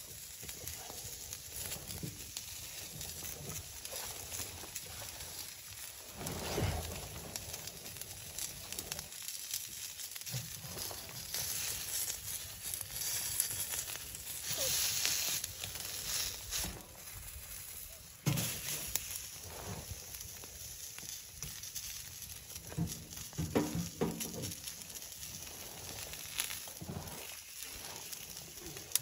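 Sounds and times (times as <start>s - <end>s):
rustling: 0.0s - 29.0s.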